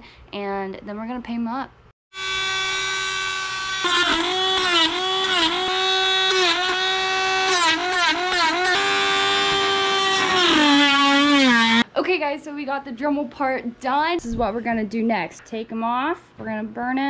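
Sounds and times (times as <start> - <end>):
rotary tool whining: 2.1 - 11.8.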